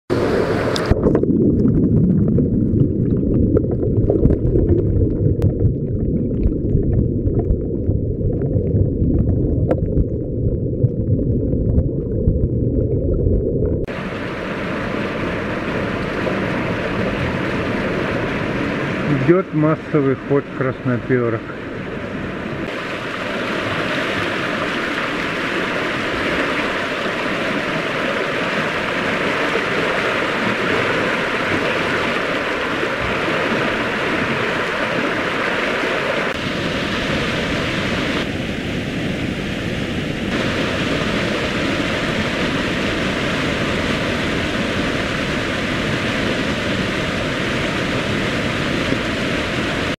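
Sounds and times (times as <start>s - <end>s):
fast water rushing: 0.1s - 5.7s, 13.8s - 50.0s.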